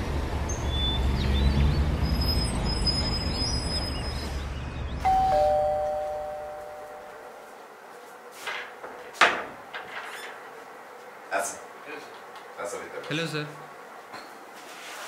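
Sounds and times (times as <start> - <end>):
two-tone doorbell chime: 5.0 - 7.3.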